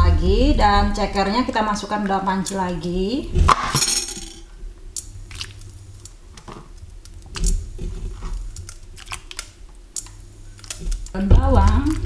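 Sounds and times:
wet squishes and plops: 5.3s - 5.6s.

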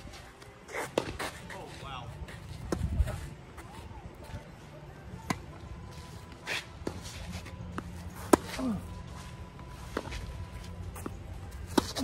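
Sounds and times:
shoes scuffing on court: 0.0s - 4.5s, 5.2s - 12.0s
tennis balls struck with rackets: 0.7s - 1.6s, 6.4s - 8.9s, 9.8s - 12.0s.

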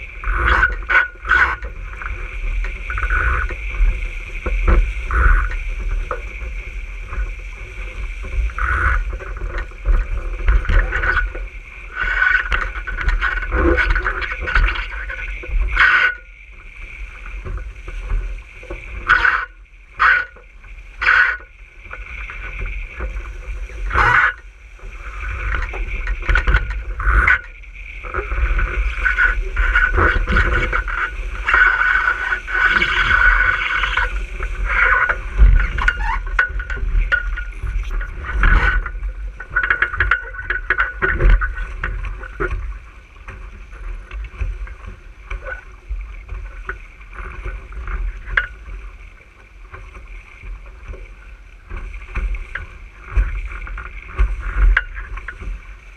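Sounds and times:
boat hull knocking on waves: 0.0s - 55.9s
water rushing along boat hull: 0.0s - 55.9s
wind buffeting microphone: 22.3s - 40.3s.

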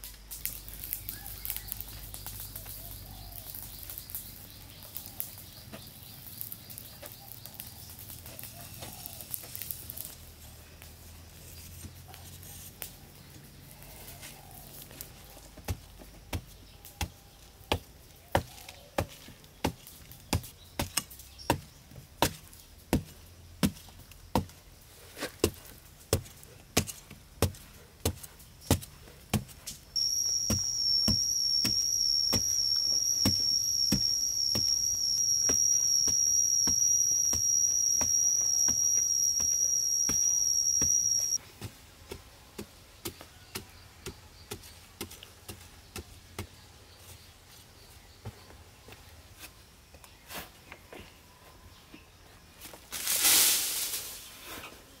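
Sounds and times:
faint high chirps: 0.0s - 9.3s, 30.0s - 41.4s.

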